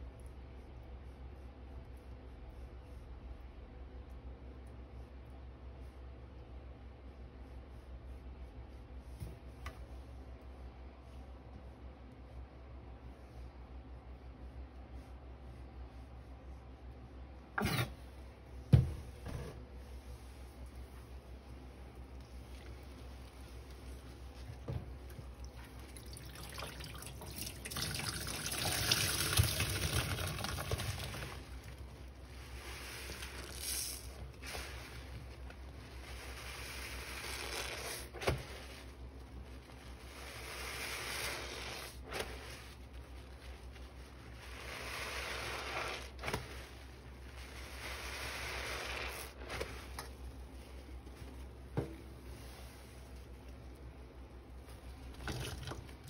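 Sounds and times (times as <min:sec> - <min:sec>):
sponges squeezed in soapy water: 0:20.0 - 0:51.7, 0:54.5 - 0:56.0
water dripping: 0:25.1 - 0:31.8.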